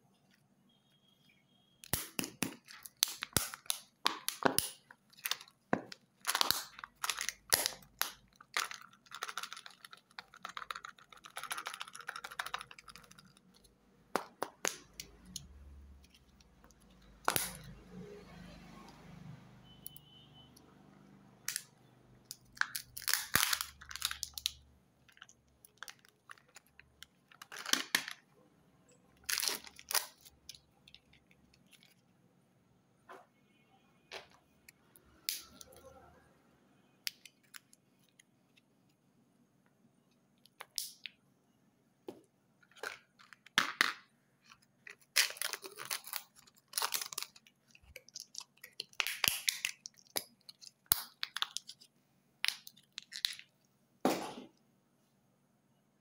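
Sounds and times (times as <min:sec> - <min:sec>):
foil wrapper crinkling: 0:44.8 - 0:51.8.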